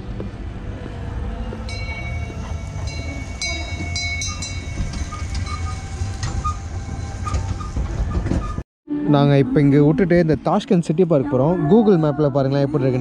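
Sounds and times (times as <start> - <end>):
vehicle rumble: 0.0 - 8.6
high squealing: 1.7 - 8.6.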